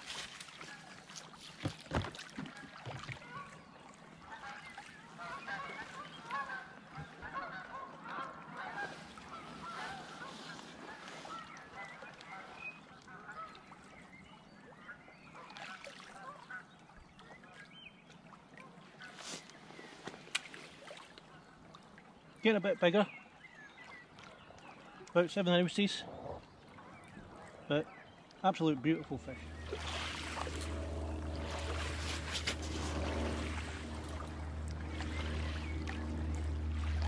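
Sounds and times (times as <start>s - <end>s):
geese honking: 4.3s - 12.5s, 29.2s - 37.0s.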